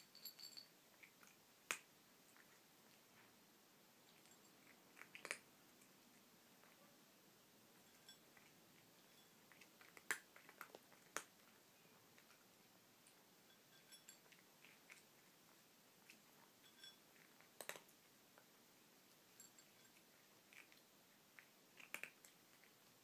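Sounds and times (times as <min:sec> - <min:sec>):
cat crunching kibble: 0:04.1 - 0:06.0, 0:08.2 - 0:13.2, 0:14.2 - 0:23.0.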